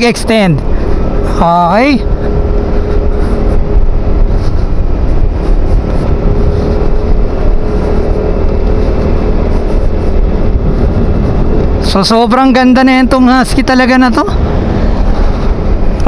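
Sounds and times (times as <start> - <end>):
wind rumble on microphone: 0.0 - 16.0
scooter engine cruising: 0.6 - 12.1.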